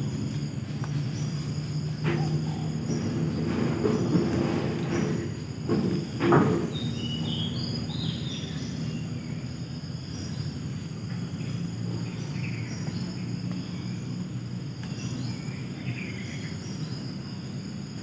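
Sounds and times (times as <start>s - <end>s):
insects trilling: 0.0s - 18.0s
low steady rumble: 0.0s - 18.0s
bird calling: 0.9s - 14.1s.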